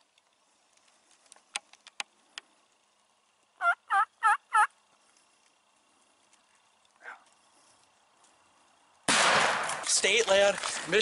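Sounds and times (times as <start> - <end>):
turkey yelps: 3.6 - 4.7.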